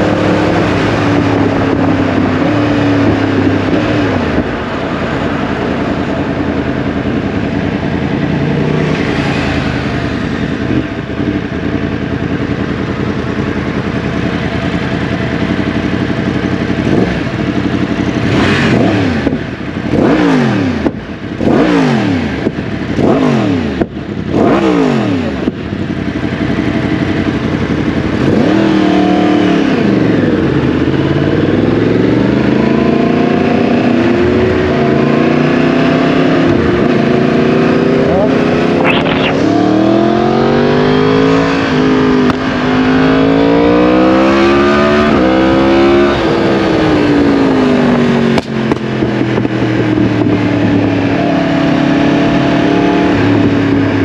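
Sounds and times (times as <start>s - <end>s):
wind noise: 0.0s - 11.9s, 33.6s - 54.0s
motorcycle engine revving: 0.0s - 54.0s.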